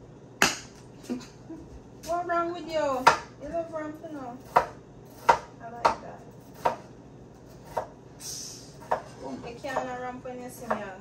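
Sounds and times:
knife chopping on cutting board: 0:03.0 - 0:03.3, 0:04.4 - 0:08.0, 0:08.8 - 0:09.9, 0:10.6 - 0:10.9
brief hiss: 0:08.2 - 0:08.7.

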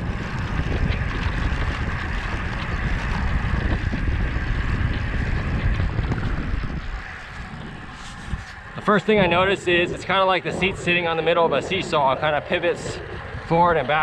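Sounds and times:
wind rushing over microphone: 0:00.0 - 0:14.0.

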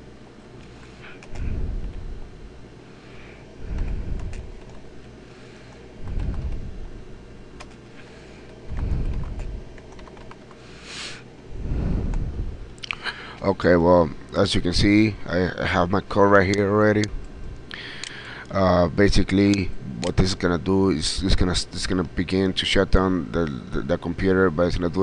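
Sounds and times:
low muffled rumble: 0:01.2 - 0:02.7, 0:03.5 - 0:10.4, 0:11.5 - 0:12.8.

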